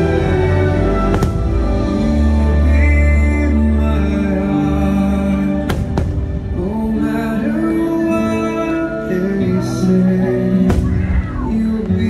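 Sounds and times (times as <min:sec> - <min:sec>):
music with long held notes: 0:00.0 - 0:12.0
firework bang: 0:01.1 - 0:01.6, 0:05.7 - 0:06.7.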